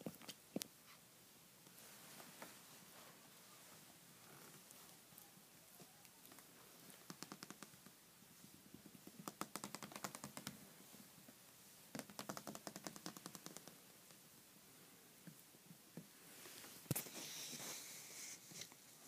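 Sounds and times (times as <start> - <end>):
puppy claws clicking on tile: 12.0 - 13.7.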